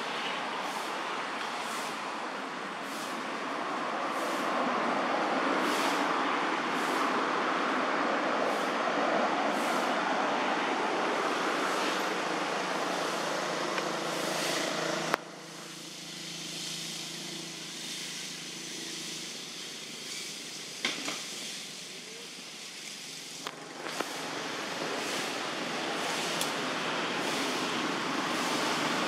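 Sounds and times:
steady outdoor rush: 0.0 - 29.0.

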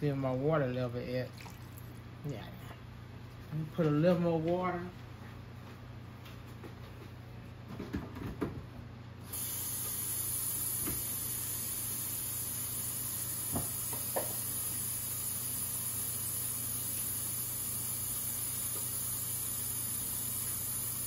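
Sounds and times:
water running: 1.1 - 2.6.

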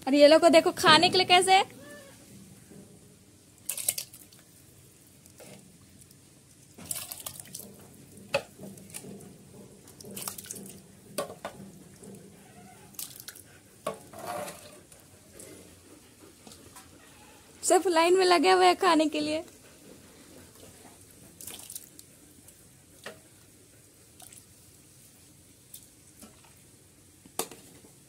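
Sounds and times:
liquid sloshing and splashing: 3.6 - 5.6, 6.6 - 12.2, 12.9 - 13.5, 21.4 - 22.0
metal rod stirring in pot: 13.8 - 14.9.

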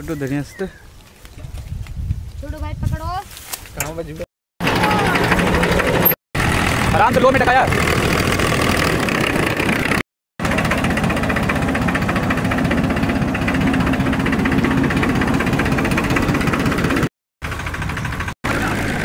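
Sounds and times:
tractor diesel engine running: 4.6 - 19.0.

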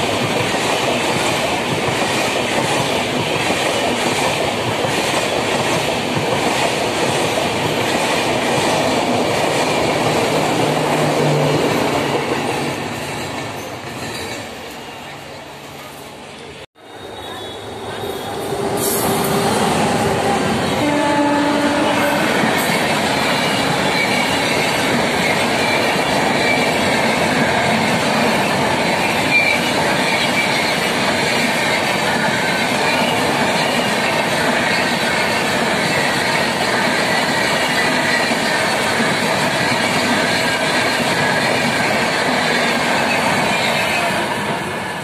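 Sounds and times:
train wheels rushing on rails: 0.0 - 45.0.

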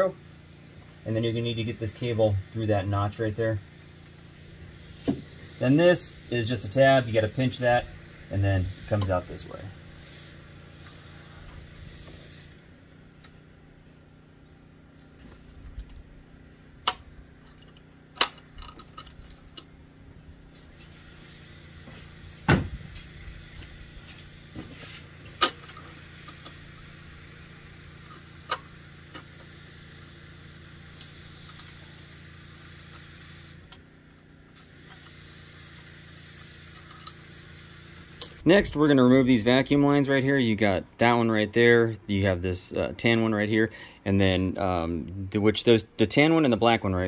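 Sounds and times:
steady low hum: 0.0 - 47.0
clicks and metallic rattles: 16.9 - 19.8.

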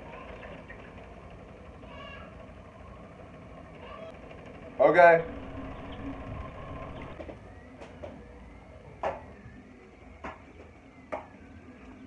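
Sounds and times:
stepper motors whining: 2.4 - 7.2.

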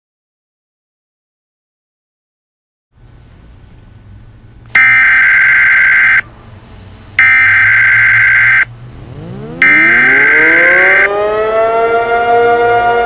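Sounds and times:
low steady hum: 3.0 - 11.2
harsh digital data bursts: 4.8 - 6.2, 7.2 - 8.7, 9.6 - 11.1.

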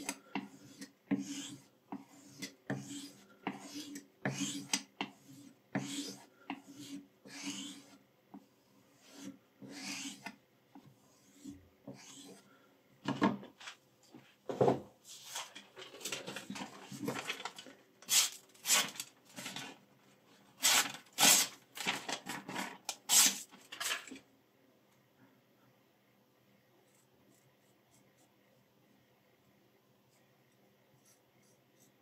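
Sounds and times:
knife rasping on sharpening surface: 0.5 - 8.0, 9.0 - 10.3, 11.3 - 12.4
knife slicing paper: 18.1 - 19.0, 20.6 - 22.0, 23.0 - 24.0.

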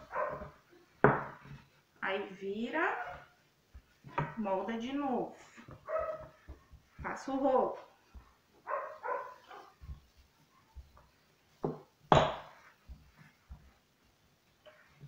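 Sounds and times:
dog barking: 0.0 - 0.5, 5.9 - 6.4, 8.7 - 9.8
rolling pin knocking on dough: 0.0 - 1.8, 3.1 - 4.6, 5.6 - 8.4, 10.8 - 13.8.

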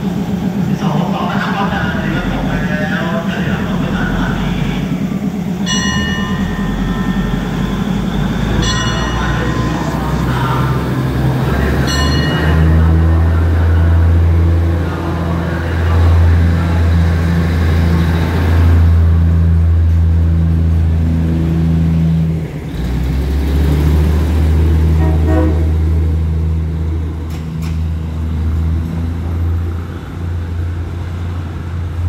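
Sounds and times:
train engines droning: 0.0 - 32.0
train horn toot: 24.9 - 26.0.

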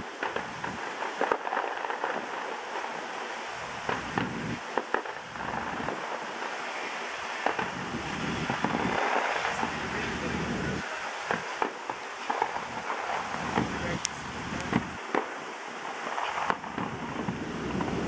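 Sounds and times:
fireworks popping and banging: 0.0 - 18.0
steady background rush: 2.0 - 18.0.

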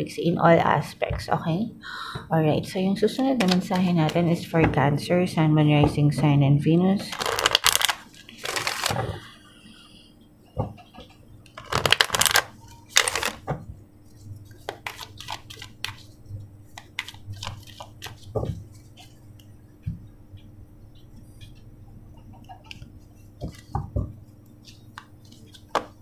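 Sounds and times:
cards being shuffled: 7.1 - 9.2, 11.5 - 13.5, 14.1 - 19.2, 22.6 - 23.9, 24.6 - 26.0.

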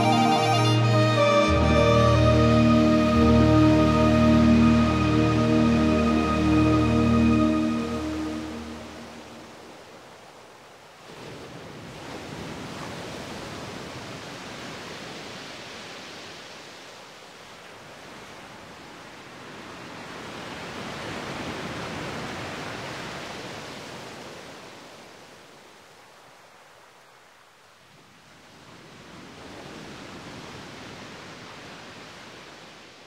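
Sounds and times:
ocean waves rushing: 0.0 - 10.2.

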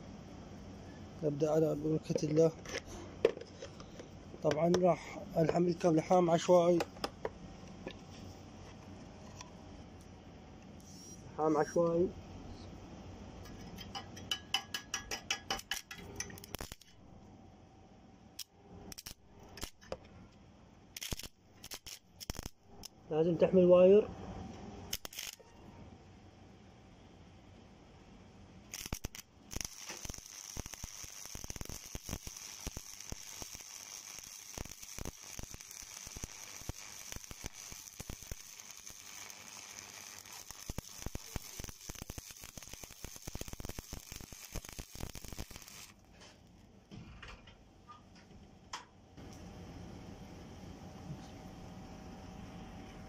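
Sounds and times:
welding arc crackling and hissing: 14.6 - 17.0, 18.4 - 19.9, 21.0 - 23.0, 24.8 - 25.5, 28.7 - 46.0.

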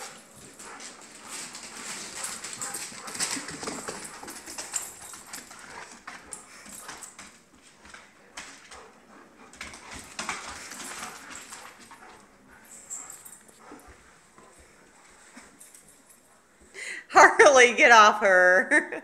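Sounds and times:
dog claws clicking on hardwood floor: 0.0 - 8.9, 9.5 - 12.2.

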